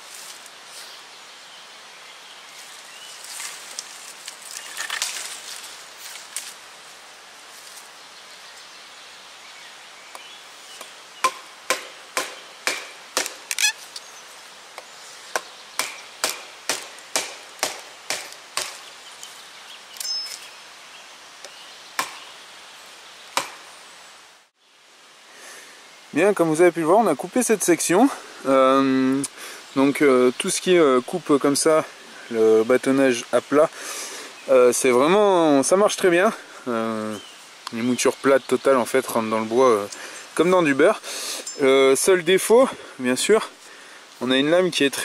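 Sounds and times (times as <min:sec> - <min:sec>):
rustling and scraping: 0:02.5 - 0:07.9
knife chopping wooden log: 0:10.8 - 0:13.6, 0:15.4 - 0:18.8, 0:22.0 - 0:22.2, 0:23.4 - 0:23.6.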